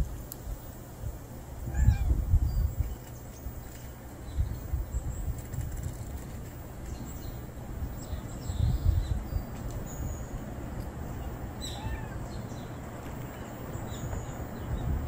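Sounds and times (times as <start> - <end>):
steady low rumble: 0.0 - 15.0
faint bird chirps: 1.7 - 15.0.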